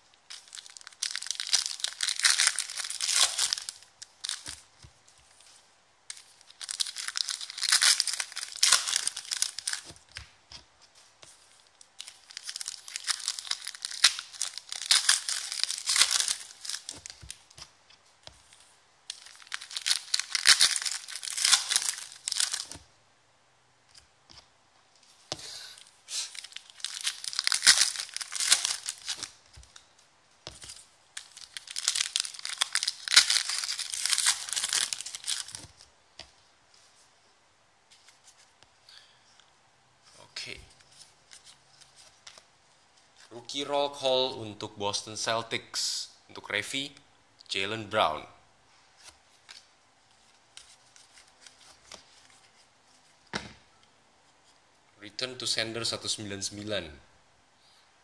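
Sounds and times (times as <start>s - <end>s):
foil packs tearing and crinkling: 0.3s - 4.5s, 6.5s - 9.9s, 12.0s - 17.4s, 19.1s - 22.8s, 26.3s - 29.4s, 30.6s - 35.8s.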